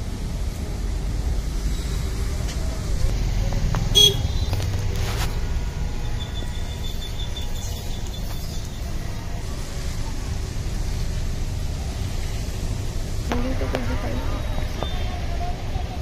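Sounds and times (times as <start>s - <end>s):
low outdoor rumble: 7.4s - 16.0s.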